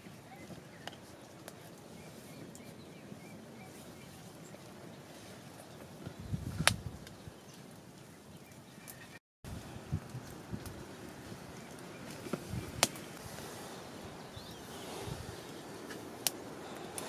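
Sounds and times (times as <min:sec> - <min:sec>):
wood fire crackling: 0:00.0 - 0:17.0.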